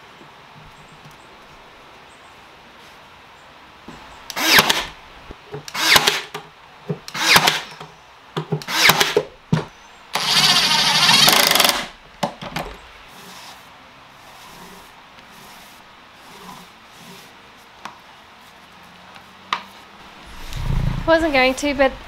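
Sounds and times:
nail gun firing into wood: 4.3 - 5.0, 5.7 - 6.4, 7.1 - 7.7, 8.6 - 9.3, 11.0 - 11.9
cordless driver running: 10.2 - 11.9.

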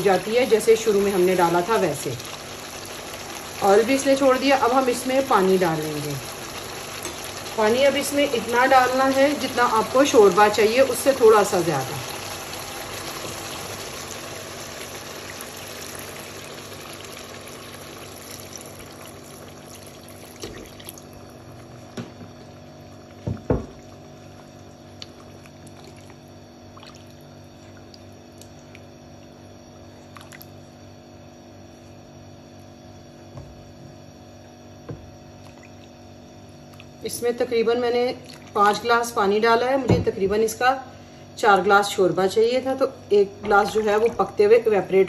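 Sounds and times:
water pouring into a pot: 0.0 - 21.8.

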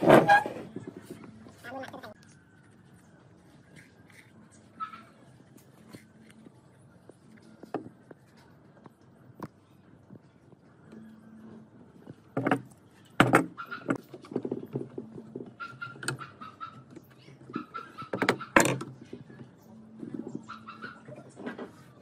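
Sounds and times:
metal knocking on wood: 13.2 - 16.3.

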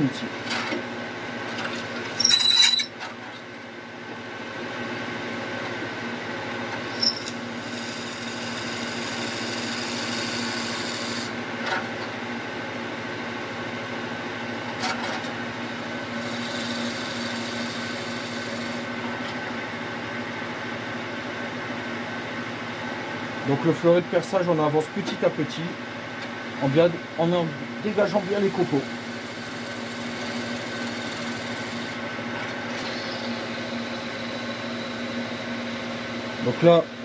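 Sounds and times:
wood lathe humming: 6.9 - 11.4, 15.7 - 18.9, 28.1 - 32.0.

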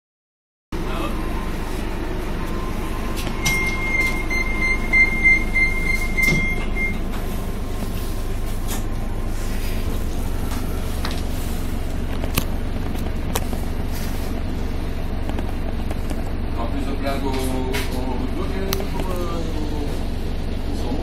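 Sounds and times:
bus engine rumble: 0.8 - 21.0.

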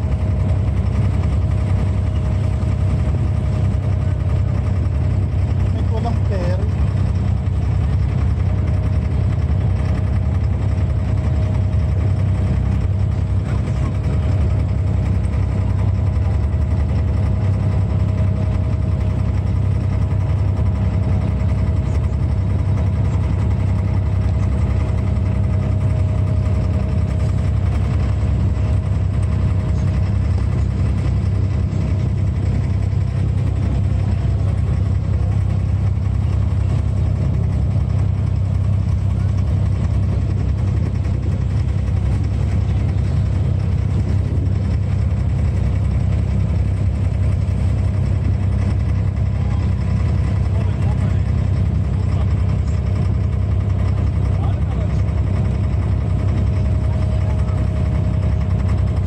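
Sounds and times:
boat diesel engine droning: 0.0 - 59.0.

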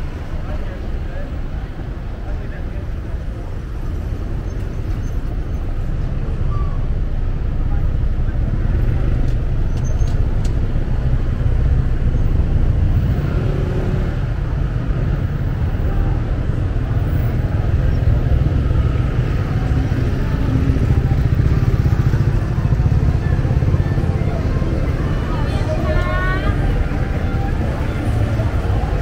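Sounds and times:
street traffic rumble: 0.0 - 29.0
motorbikes passing: 10.2 - 29.0.

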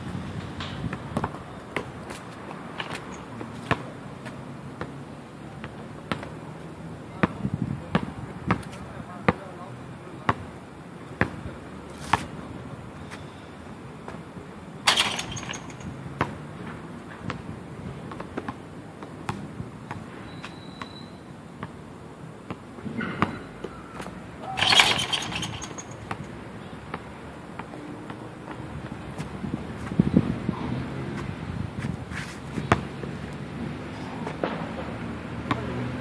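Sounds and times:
basketball bouncing on concrete: 0.6 - 5.0, 7.2 - 9.5, 14.9 - 16.5, 17.2 - 18.6, 24.5 - 30.1, 32.6 - 33.1, 34.2 - 35.8.

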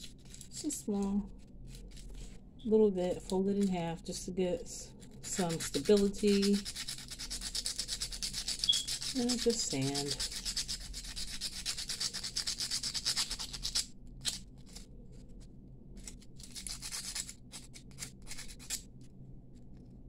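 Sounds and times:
sandpaper rubbing on metal bangle: 5.1 - 14.8, 16.1 - 18.8.

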